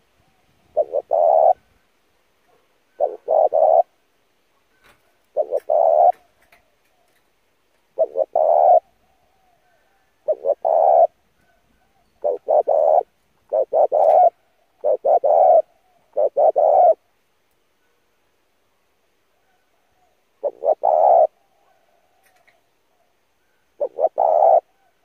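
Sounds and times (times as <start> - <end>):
dove cooing: 0.0 - 1.7, 2.9 - 4.0, 4.8 - 7.2, 7.9 - 17.1, 19.4 - 25.0.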